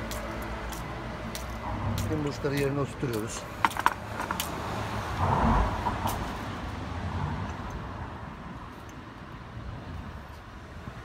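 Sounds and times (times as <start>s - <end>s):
vehicle passing: 0.0s - 8.7s.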